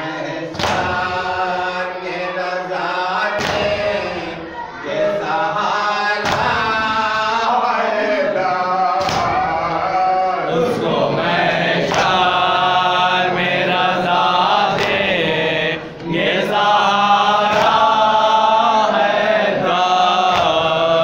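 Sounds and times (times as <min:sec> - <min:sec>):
men chanting a lament: 0:00.0 - 0:21.0
hands slapping chests: 0:00.5 - 0:01.0, 0:09.0 - 0:09.8, 0:11.8 - 0:12.4, 0:14.5 - 0:15.2, 0:17.4 - 0:18.0, 0:20.2 - 0:20.8.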